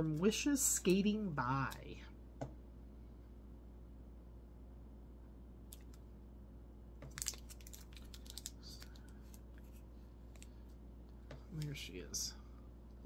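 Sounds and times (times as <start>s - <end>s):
faint low hum: 0.0s - 13.0s
plastic packaging crinkling: 7.0s - 10.7s.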